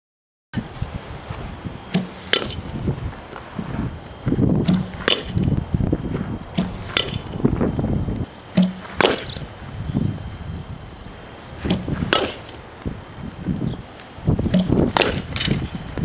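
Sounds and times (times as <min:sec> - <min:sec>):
bat cracking a ball: 0:01.9 - 0:02.7, 0:04.6 - 0:05.6, 0:06.5 - 0:07.4, 0:08.5 - 0:09.5, 0:11.6 - 0:12.6, 0:14.5 - 0:15.8.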